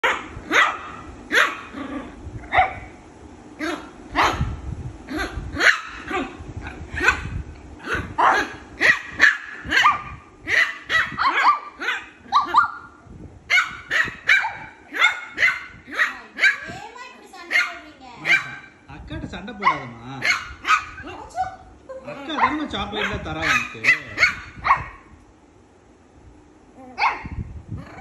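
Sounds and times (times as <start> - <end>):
puppy barking in high yaps: 0.0 - 1.8, 3.6 - 4.5, 5.1 - 6.4, 7.0 - 16.7, 17.5 - 18.8, 19.6 - 21.1, 22.4 - 25.1, 26.9 - 27.4.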